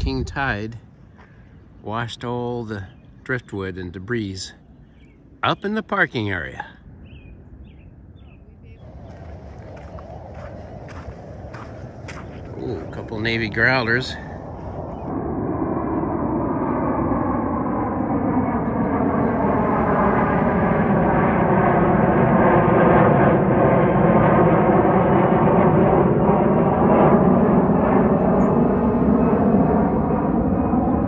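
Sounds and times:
jets flying over: 0:08.5 - 0:31.0.

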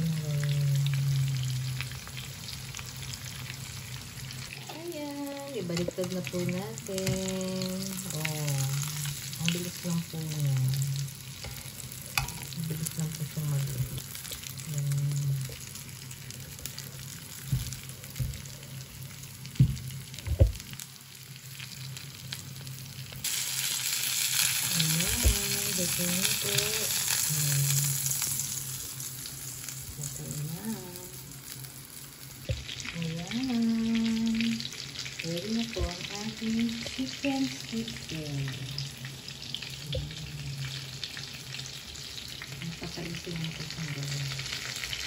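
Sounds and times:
chicken sizzling in oil: 0:00.0 - 0:45.0
spatula knocking on pan: 0:19.6 - 0:20.6.

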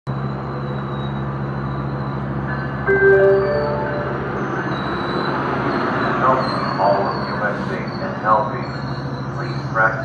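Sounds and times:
train coaches rolling rumble: 0:00.1 - 0:10.0
high ringing tones: 0:00.6 - 0:07.1
low hum: 0:01.8 - 0:05.9.

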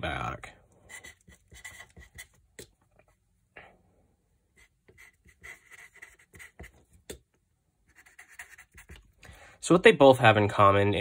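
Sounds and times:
marker writing on paper: 0:00.9 - 0:02.7, 0:04.5 - 0:07.2, 0:07.9 - 0:09.1.

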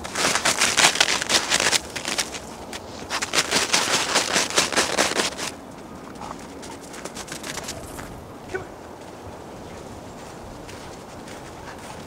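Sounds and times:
dog digging in snow: 0:00.0 - 0:05.5.

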